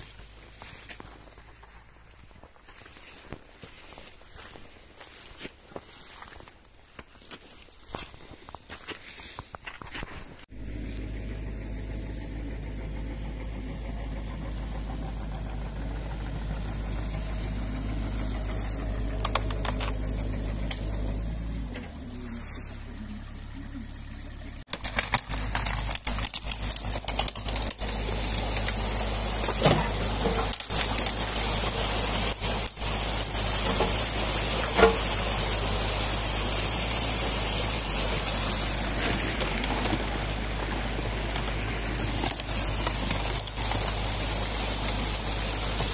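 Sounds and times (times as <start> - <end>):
sticks and branches cracking: 0.0 - 11.1, 13.9 - 22.2, 24.7 - 45.9
excavator diesel engine running: 10.5 - 45.9.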